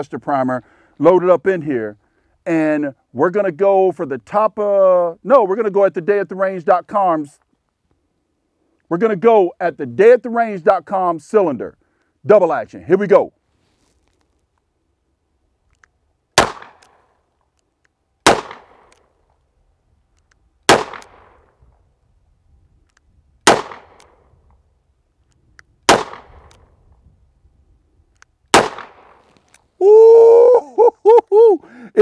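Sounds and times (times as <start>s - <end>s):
revolver shots with echo: 28.6s - 29.2s.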